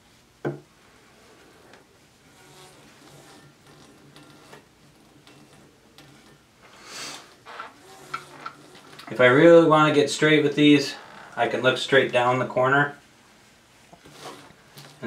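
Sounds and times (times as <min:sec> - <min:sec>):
wooden paddle scraping clay: 0:13.9 - 0:15.0.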